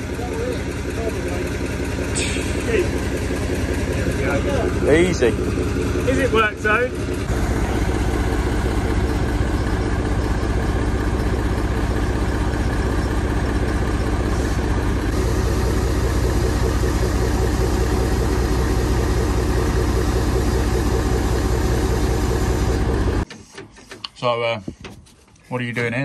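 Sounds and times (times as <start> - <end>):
diesel truck engine idling: 0.0 - 23.3.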